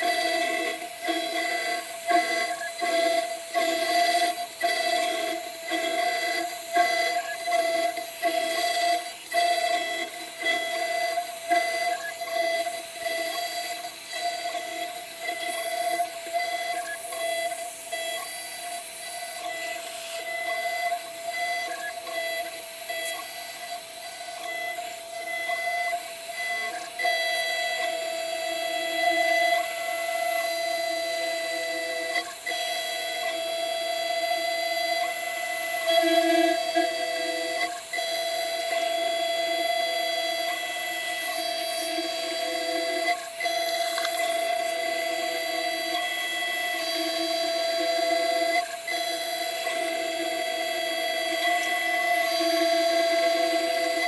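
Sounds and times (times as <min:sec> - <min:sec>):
router spindle cutting metal: 0:00.0 - 0:54.0.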